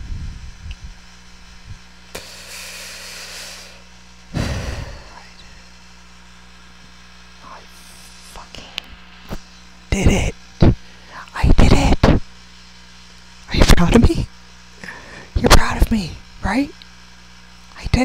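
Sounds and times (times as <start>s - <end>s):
electrical hum: 0.0s - 18.0s
breath into microphone: 4.4s - 5.3s.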